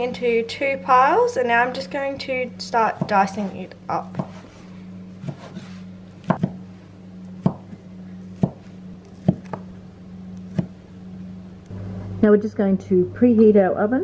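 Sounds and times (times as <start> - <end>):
knife chopping on wooden board: 2.9 - 4.6, 5.2 - 6.6, 7.4 - 7.8, 8.4 - 9.7, 10.5 - 10.8.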